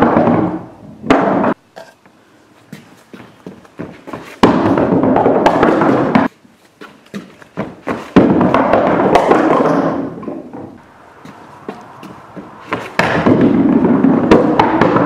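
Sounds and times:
footsteps on wooden boards: 1.4 - 15.0
bowling ball rolling on wood: 3.4 - 6.3, 7.5 - 15.0
bowling ball thud on wood: 3.8 - 6.3, 7.6 - 15.0
bowling pins struck: 4.4 - 6.3, 8.1 - 15.0.

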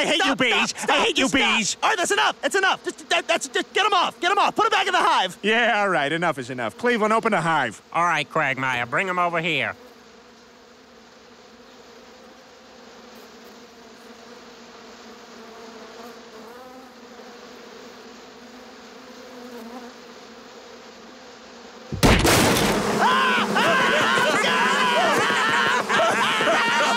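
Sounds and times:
man yelling: 0.0 - 5.7, 22.8 - 26.9
cartoon bees buzzing: 0.0 - 26.9
wooden boxes smashing: 21.9 - 26.1.

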